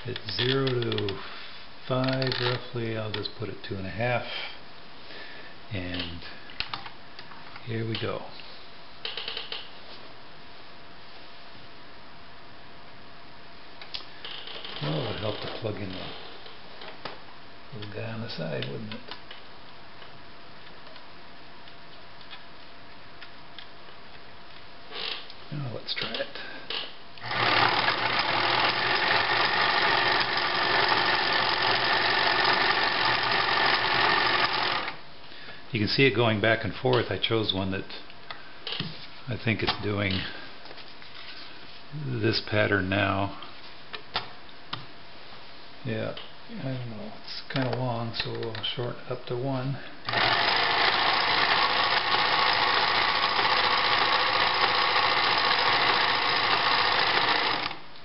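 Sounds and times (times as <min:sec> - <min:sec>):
sewing machine running: 0:27.2 - 0:35.0, 0:50.0 - 0:57.8.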